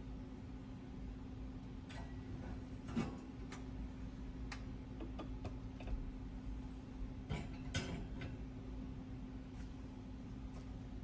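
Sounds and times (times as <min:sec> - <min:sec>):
steady low hum: 0:00.0 - 0:11.0
wire hangers clicking on oven rack: 0:07.3 - 0:08.4.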